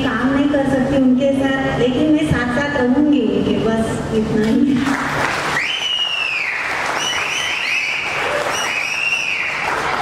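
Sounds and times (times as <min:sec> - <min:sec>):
audience applauding: 0:04.8 - 0:10.0
high-pitched cheers: 0:05.4 - 0:10.0.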